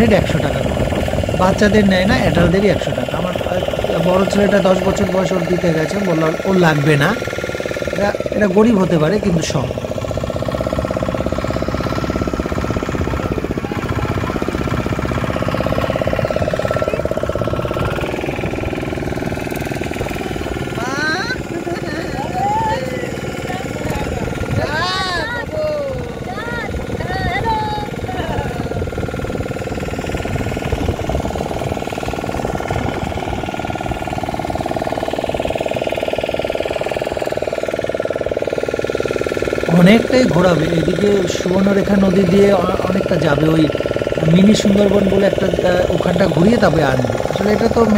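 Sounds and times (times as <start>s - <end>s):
wind buffeting microphone: 0.0s - 5.1s, 11.8s - 21.6s, 23.4s - 34.9s
motor boat engine chugging: 0.0s - 47.9s.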